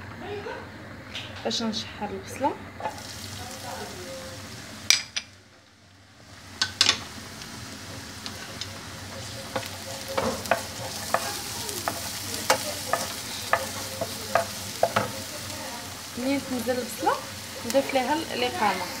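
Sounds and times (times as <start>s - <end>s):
onion sizzling in frying pan: 1.6s - 19.0s
wooden spoon scraping pan: 9.2s - 15.4s.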